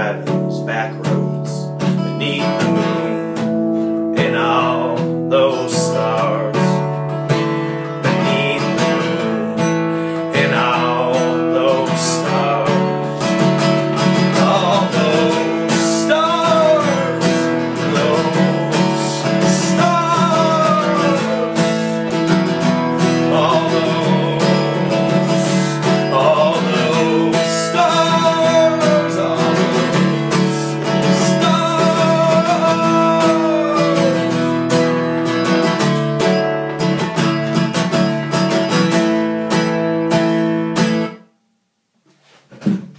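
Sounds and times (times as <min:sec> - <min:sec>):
acoustic guitar strumming: 0:00.0 - 0:42.9
wordless singing: 0:04.1 - 0:06.9, 0:08.0 - 0:35.1.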